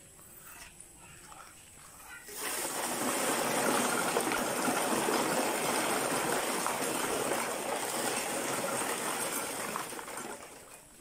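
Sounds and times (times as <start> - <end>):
concrete mix pouring from bucket: 2.3 - 11.0.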